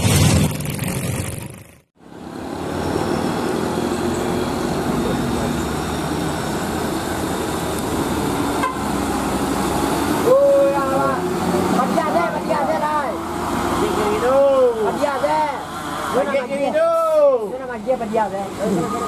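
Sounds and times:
truck diesel engine running: 0.0s - 16.6s
road traffic noise: 0.0s - 19.0s.

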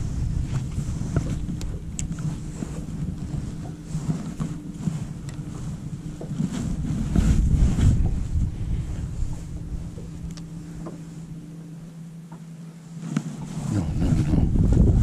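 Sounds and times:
wind buffeting microphone: 0.0s - 11.4s, 13.4s - 15.0s
boat motor humming: 0.0s - 15.0s
small ticks and knocks: 5.2s - 5.5s, 10.0s - 11.0s, 12.3s - 12.5s.

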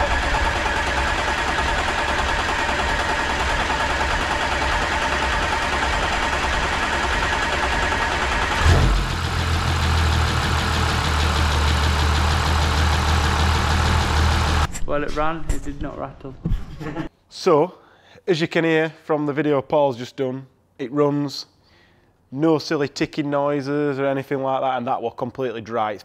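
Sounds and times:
diesel engine idling: 0.0s - 14.7s.

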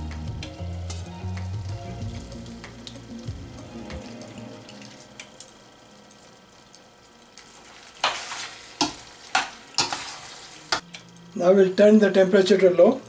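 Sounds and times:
liquid sizzling softly: 0.8s - 11.5s
water poured into a pan: 2.2s - 10.8s.

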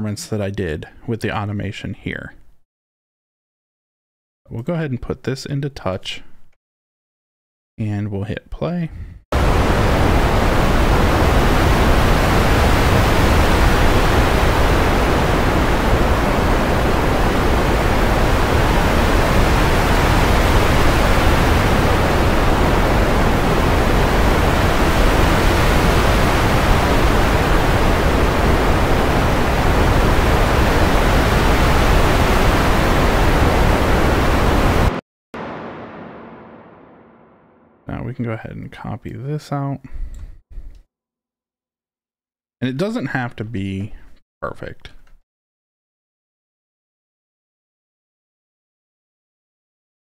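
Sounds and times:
synthesized ocean waves rushing: 9.4s - 37.8s.

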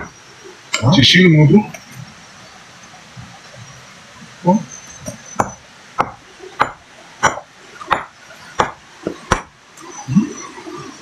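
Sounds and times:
hammer striking rock: 5.4s - 9.6s.

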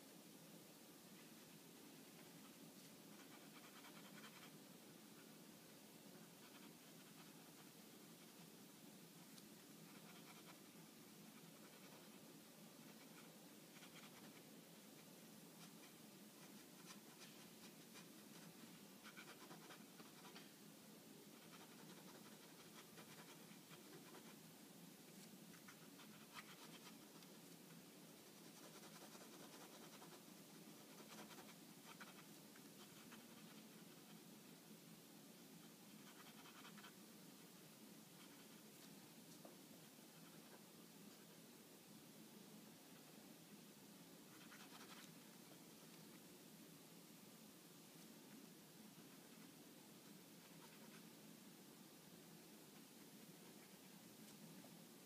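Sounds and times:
steady low hiss: 0.0s - 55.0s
pen scratching on paper: 3.1s - 4.6s, 6.2s - 8.4s, 9.8s - 10.7s, 11.3s - 12.2s, 12.8s - 20.5s, 21.3s - 24.4s, 25.5s - 27.3s, 28.3s - 34.2s, 35.6s - 37.0s, 44.3s - 45.1s, 50.4s - 51.2s.

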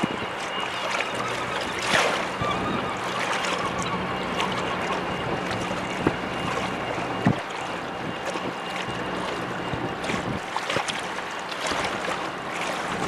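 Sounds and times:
ferry diesel engines droning: 0.0s - 13.0s
wind: 0.0s - 13.0s
sea washing against rocks: 3.2s - 13.0s.

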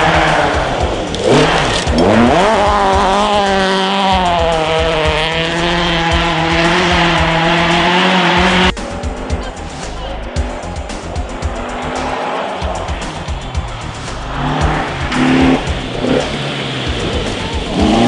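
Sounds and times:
rally car engine revving: 0.0s - 18.0s.

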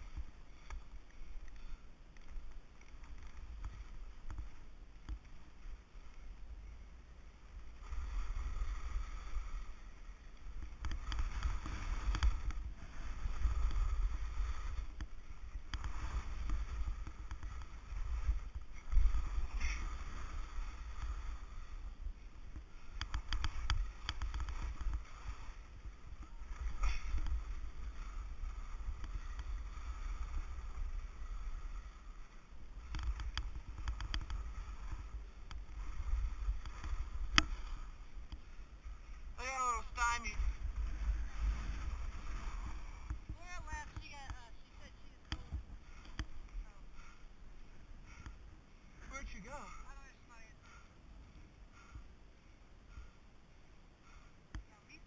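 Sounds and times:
skis hissing over snow: 7.4s - 48.2s.

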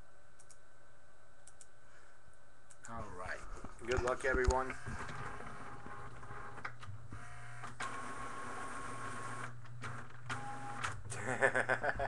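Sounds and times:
steady low hum: 0.0s - 12.0s
clicks: 0.4s - 0.6s, 1.4s - 1.7s, 3.9s - 6.9s
small machine whirring: 4.6s - 11.2s.

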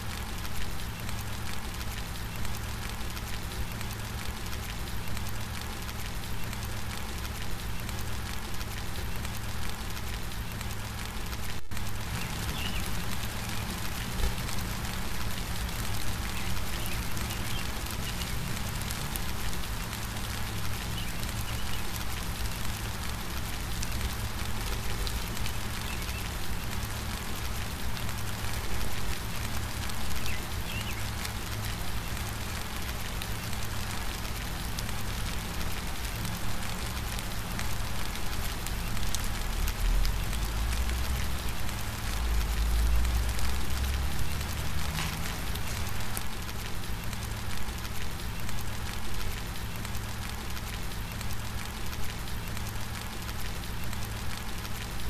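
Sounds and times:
rain patter: 0.0s - 55.0s.

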